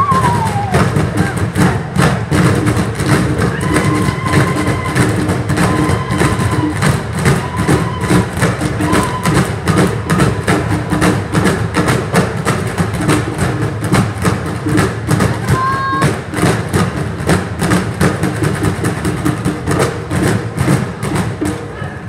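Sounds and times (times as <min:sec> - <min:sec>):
hand drums beating: 0:00.0 - 0:22.0
high whistle-like tone: 0:05.6 - 0:06.8, 0:08.8 - 0:09.5.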